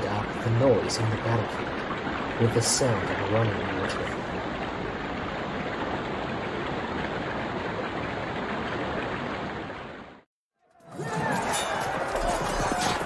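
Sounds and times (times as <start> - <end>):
stream water rushing: 0.0 - 10.2.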